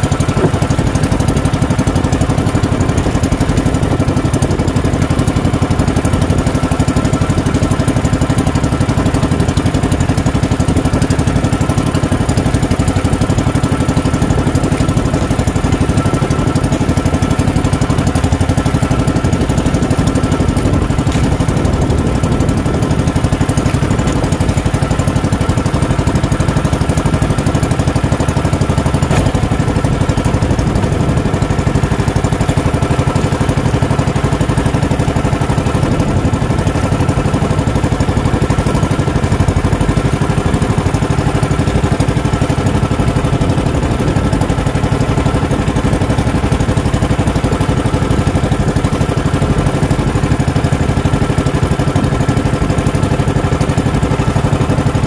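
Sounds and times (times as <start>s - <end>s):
small boat engine running: 0.0s - 55.0s.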